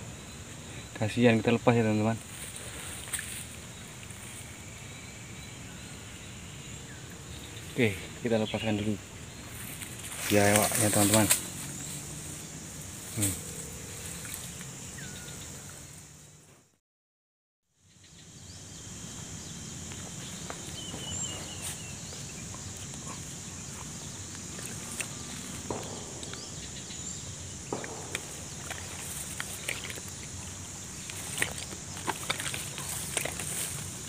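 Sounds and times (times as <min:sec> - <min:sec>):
steady high hum: 0:18.2 - 0:34.0.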